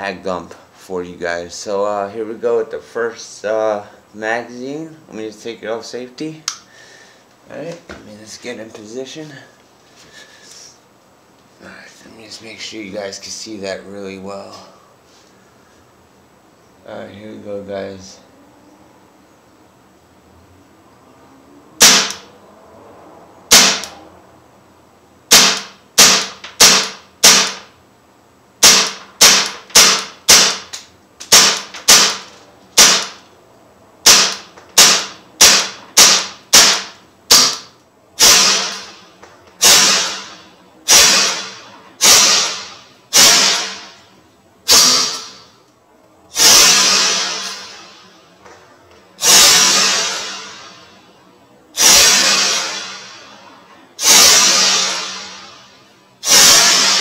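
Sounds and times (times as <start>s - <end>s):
bb pistol shots cracking: 21.8s - 22.2s, 23.5s - 24.0s, 25.3s - 27.7s, 28.6s - 30.7s, 31.3s - 33.2s, 34.0s - 39.0s, 39.6s - 43.9s, 44.7s - 45.4s.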